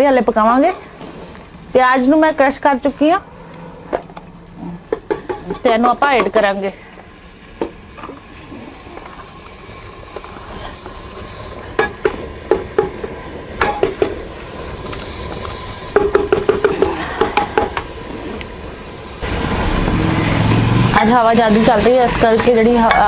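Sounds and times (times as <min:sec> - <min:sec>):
onion sizzling in hot oil: 0:00.0 - 0:03.2, 0:05.1 - 0:23.0
plastic chopper knocking on pot: 0:16.0 - 0:17.8.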